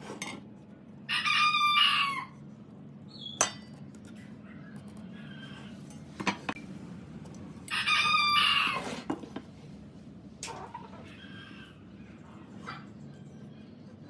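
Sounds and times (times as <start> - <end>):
rooster crowing: 1.1 - 2.4, 7.7 - 9.1.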